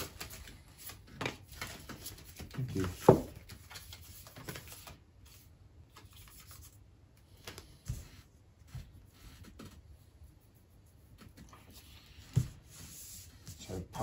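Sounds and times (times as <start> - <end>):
cards rustling: 0.0 - 6.8.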